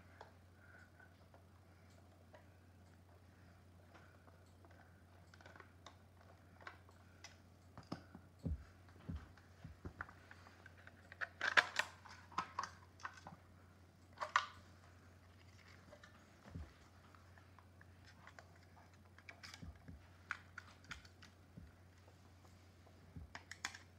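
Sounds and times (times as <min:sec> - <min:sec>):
plastic clicks and clatters: 0:03.9 - 0:13.4, 0:14.1 - 0:14.7, 0:15.3 - 0:21.8, 0:23.1 - 0:23.9.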